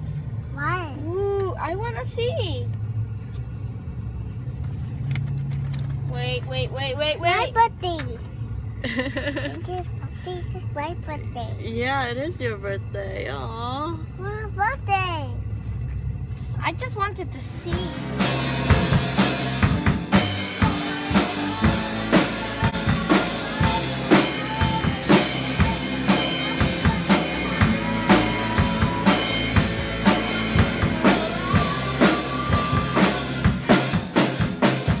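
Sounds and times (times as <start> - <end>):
guitars: 16.8 - 35.0
drum kit beat: 17.6 - 35.0
piano: 17.7 - 35.0.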